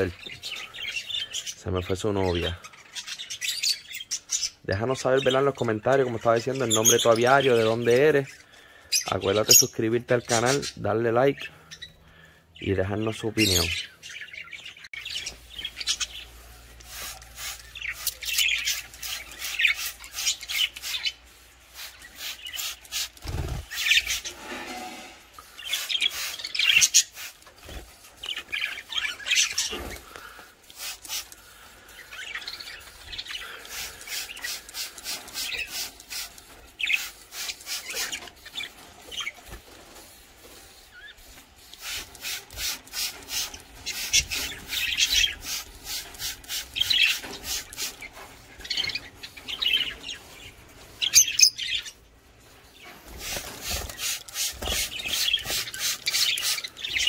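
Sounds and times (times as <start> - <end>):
small birds chirping: 0.0 - 57.0
spray bottle squirting water: 15.8 - 24.3, 25.6 - 27.7, 30.6 - 31.5, 33.6 - 38.7, 40.7 - 48.1, 53.1 - 57.0.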